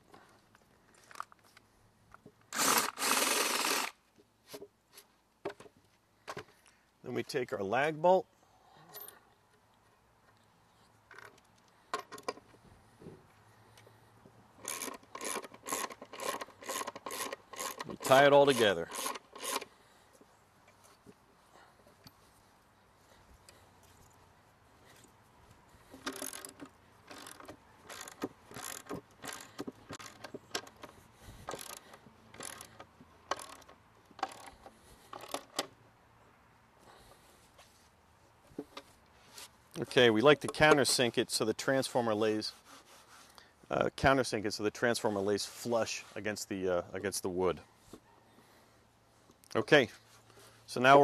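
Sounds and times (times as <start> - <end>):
ratchet wrench rasping: 14.6 - 19.7, 25.9 - 35.5.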